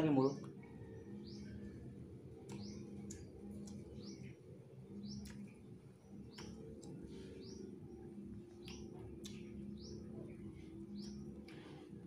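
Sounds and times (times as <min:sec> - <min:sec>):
small birds chirping: 0:00.0 - 0:12.0
steady low hum: 0:00.0 - 0:12.0.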